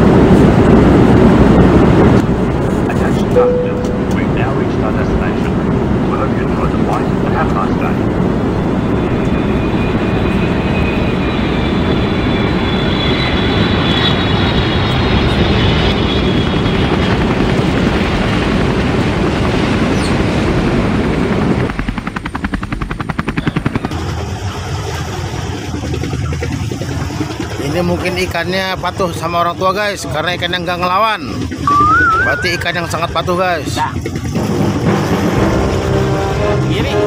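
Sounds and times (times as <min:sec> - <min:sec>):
engine rumble: 0:00.0 - 0:22.4.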